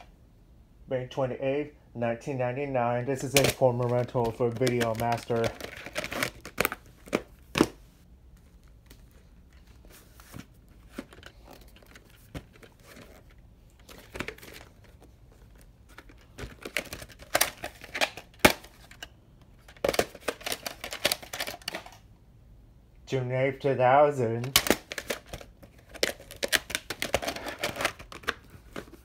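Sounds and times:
plastic case clicks and clatter: 3.2s - 7.8s, 10.9s - 22.0s, 24.4s - 29.0s.

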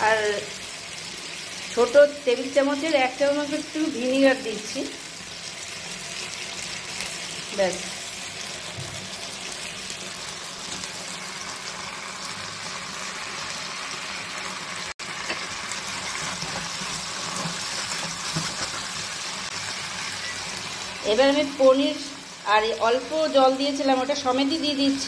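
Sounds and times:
vegetables sizzling in a pan: 0.0s - 25.0s
spatula stirring in a pan: 15.1s - 20.9s.

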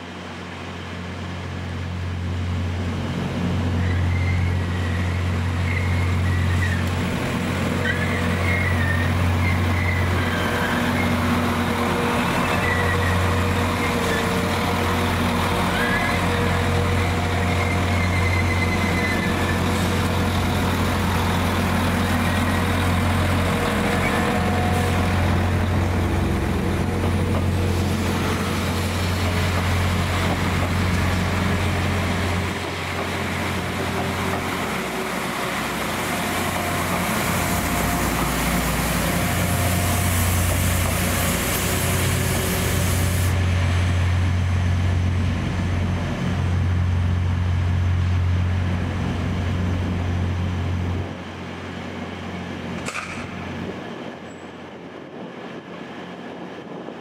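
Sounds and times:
diesel train engine drone: 0.0s - 57.0s
high squeals: 15.6s - 20.0s.

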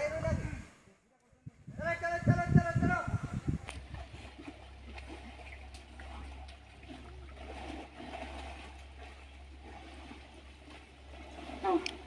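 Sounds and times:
river water rushing: 3.8s - 12.0s.

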